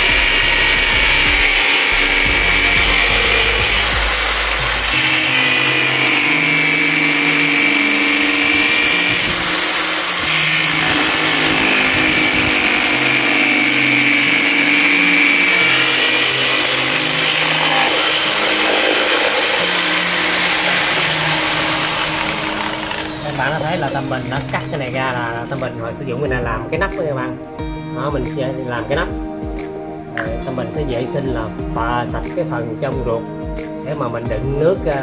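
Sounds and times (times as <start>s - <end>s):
blade rasping through shell: 0.0s - 24.6s
electric drill motor whine: 0.0s - 25.2s.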